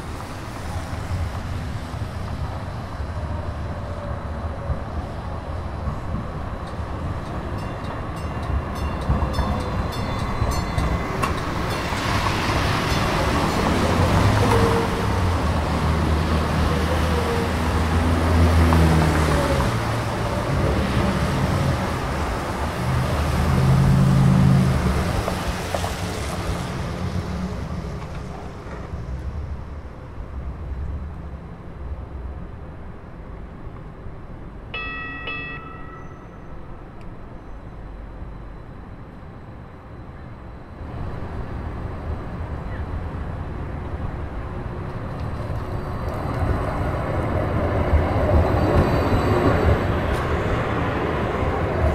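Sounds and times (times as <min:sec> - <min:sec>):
street traffic: 0:00.0 - 0:51.9
train rumbling on track: 0:00.0 - 0:51.9
train horn tone: 0:14.2 - 0:15.4.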